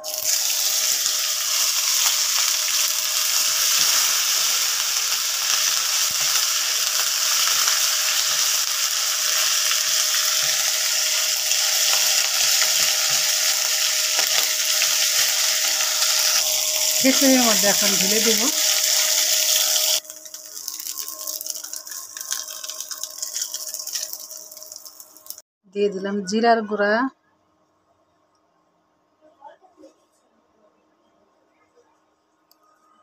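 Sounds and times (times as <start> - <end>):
paste sizzling in hot oil: 0.0 - 25.4.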